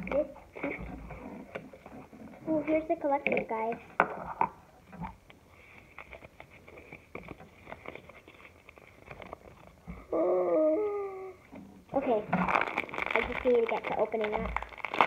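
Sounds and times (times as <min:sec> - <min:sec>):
paper rustling: 0:05.5 - 0:09.8, 0:12.5 - 0:15.0.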